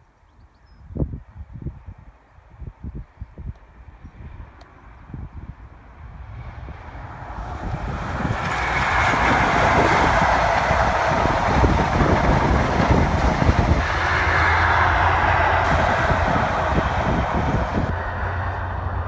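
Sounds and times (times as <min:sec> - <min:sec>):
coaches rushing on rails: 0:03.8 - 0:19.0
diesel train passing: 0:03.8 - 0:19.0.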